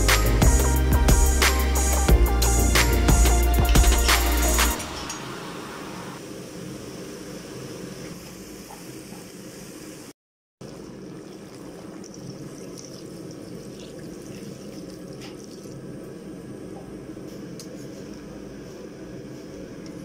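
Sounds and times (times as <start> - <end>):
curry bubbling in a pan: 10.6 - 16.1.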